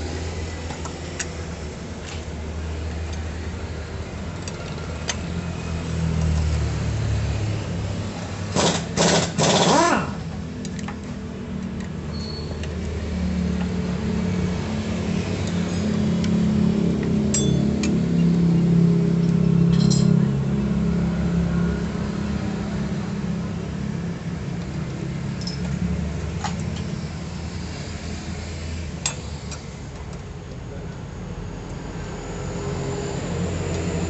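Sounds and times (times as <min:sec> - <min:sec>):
socket wrench clinking: 0:17.3 - 0:18.3, 0:25.4 - 0:25.8.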